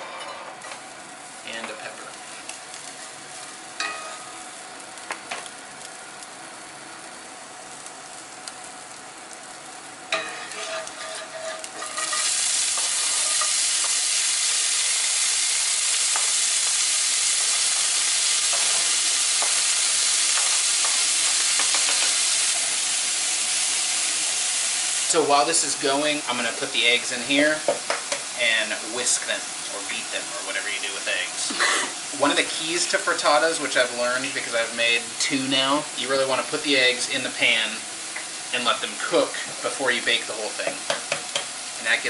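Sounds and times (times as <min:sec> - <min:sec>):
bacon sizzling in skillet: 0:00.0 - 0:42.0
vegetables frying loudly: 0:00.0 - 0:42.0.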